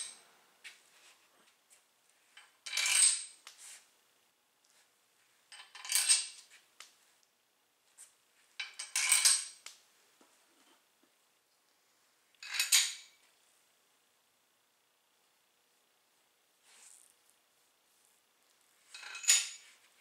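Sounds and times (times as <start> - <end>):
metallic scraping and clinking: 18.8 - 19.9.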